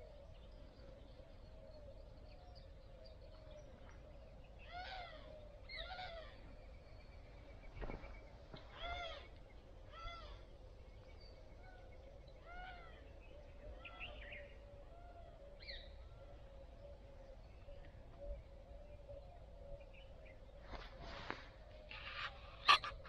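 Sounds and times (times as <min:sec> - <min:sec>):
faint animal calls: 0:03.2 - 0:06.8, 0:08.6 - 0:10.6, 0:11.6 - 0:17.1, 0:20.8 - 0:23.0.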